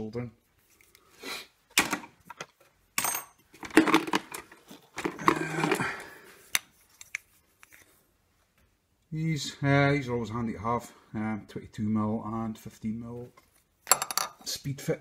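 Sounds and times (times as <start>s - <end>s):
tools and pipes clinking: 1.8s - 6.0s, 13.8s - 14.5s.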